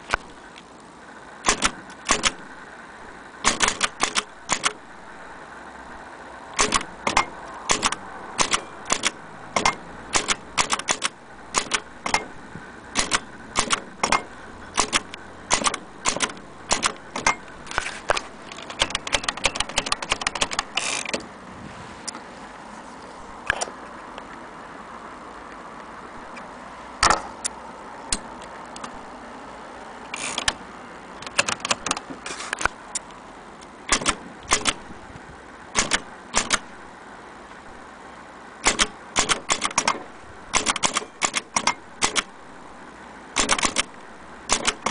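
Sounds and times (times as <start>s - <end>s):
typewriter keys clacking: 14.8s - 17.4s, 18.6s - 20.7s, 38.6s - 40.0s, 40.6s - 42.3s, 43.4s - 43.9s, 44.5s - 44.9s.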